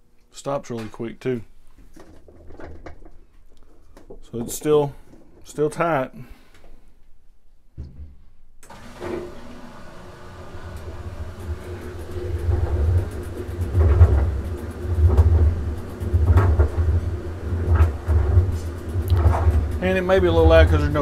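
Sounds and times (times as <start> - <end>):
washing machine low rumble: 8.7 - 21.0.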